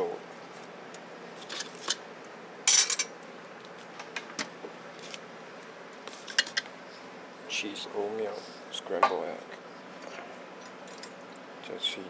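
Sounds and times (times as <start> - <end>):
metal tongs clinking: 2.7 - 3.1.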